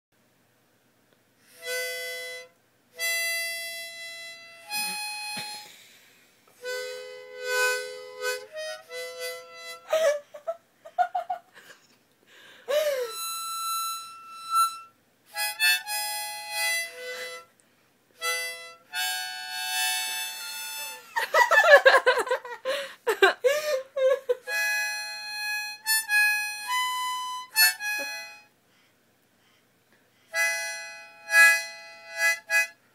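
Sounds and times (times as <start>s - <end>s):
harmonica chords and notes: 1.5s - 10.2s, 12.7s - 17.6s, 18.2s - 21.2s, 24.4s - 28.6s, 30.3s - 32.9s.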